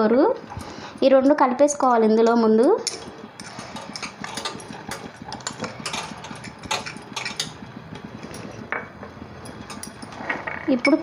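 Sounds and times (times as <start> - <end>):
steady low hum: 0.0 - 11.0
metal spoon clinking glass bowls: 2.8 - 7.6.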